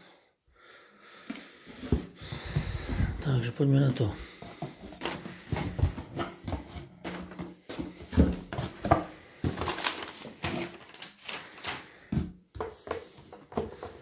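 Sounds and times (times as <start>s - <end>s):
packing paper rustling: 4.3s - 12.0s.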